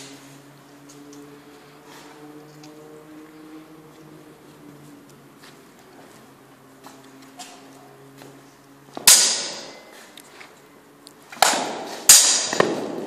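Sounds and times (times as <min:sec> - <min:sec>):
ringing metal sword clashes: 0:09.1 - 0:10.0.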